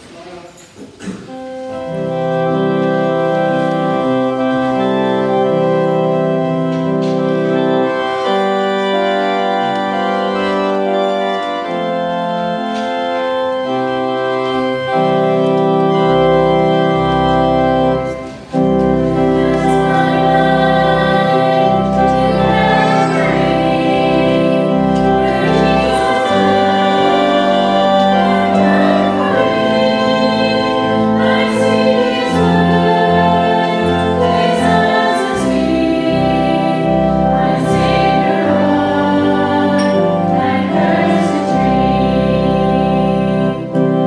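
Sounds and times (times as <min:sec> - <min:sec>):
organ playing slow chords: 0:01.0 - 0:44.0
deep bass organ notes: 0:01.4 - 0:44.0.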